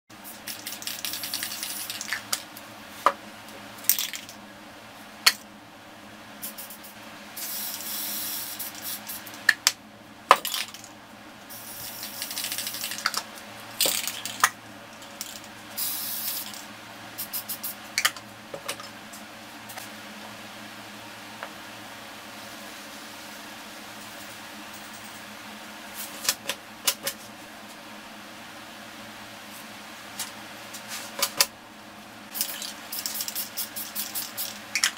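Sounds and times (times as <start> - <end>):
spray paint can hissing: 0.2 - 2.3, 6.4 - 9.4, 11.5 - 13.2, 15.2 - 16.6, 17.2 - 17.8, 32.3 - 34.9.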